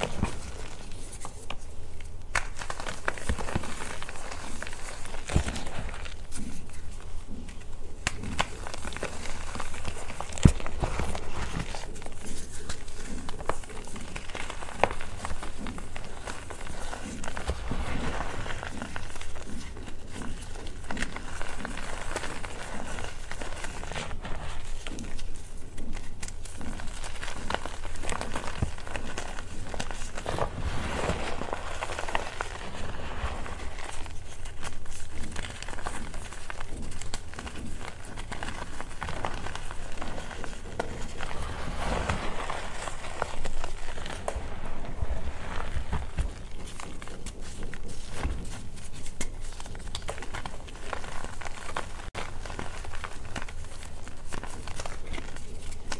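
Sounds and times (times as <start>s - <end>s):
hands crushing chalk lumps: 0.0s - 55.9s.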